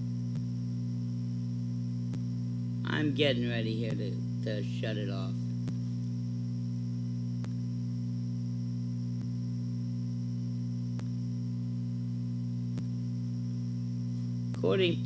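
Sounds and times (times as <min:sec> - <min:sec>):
electrical mains hum: 0:00.0 - 0:15.0
faint high whine: 0:00.0 - 0:15.0
faint tick: 0:07.4 - 0:07.6, 0:10.9 - 0:11.2.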